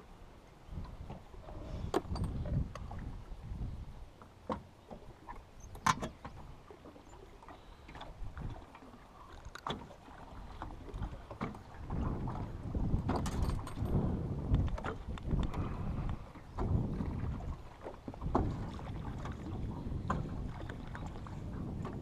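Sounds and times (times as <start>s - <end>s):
wind and water rumble: 0.0s - 22.0s
gear clicking in metal boat: 1.9s - 2.9s, 5.3s - 6.4s, 9.2s - 9.9s, 12.9s - 16.7s.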